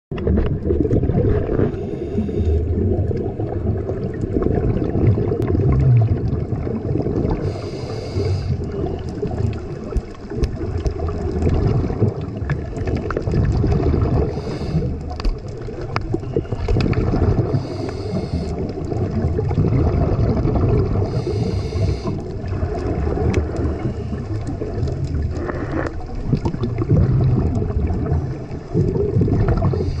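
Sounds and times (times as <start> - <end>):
bubbles gurgling: 0.1 - 30.0
diver breathing through regulator: 1.5 - 3.0, 7.3 - 9.1, 14.0 - 15.3, 16.4 - 19.0, 20.9 - 22.8, 25.3 - 26.0, 29.5 - 30.0.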